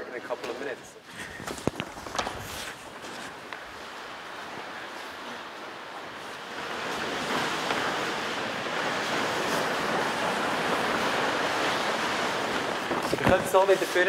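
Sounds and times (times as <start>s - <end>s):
large paper rustling and crackling: 0.4s - 3.7s, 6.7s - 14.0s.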